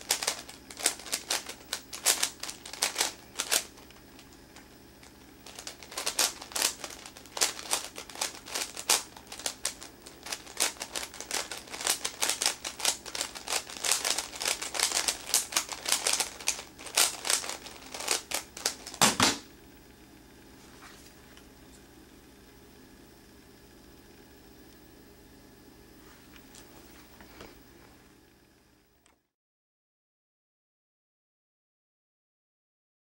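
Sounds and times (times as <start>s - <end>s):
cube set down with thump: 19.0s - 19.5s.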